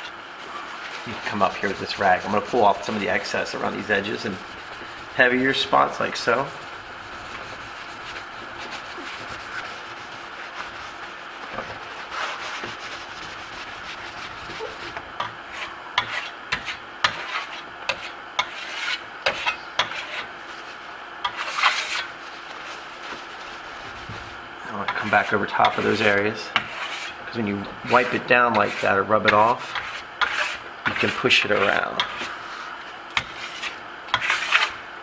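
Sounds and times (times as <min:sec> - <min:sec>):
cloth rag rubbing plaster: 0:00.0 - 0:19.0, 0:21.4 - 0:34.8
trowel scraping plaster: 0:00.5 - 0:20.3, 0:21.3 - 0:22.8, 0:24.8 - 0:27.2, 0:27.8 - 0:32.4, 0:33.2 - 0:34.8.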